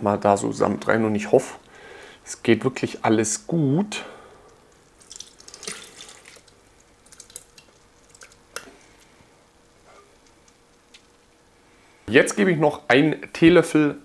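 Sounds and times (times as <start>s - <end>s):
juices trickling and dripping: 3.9s - 11.9s.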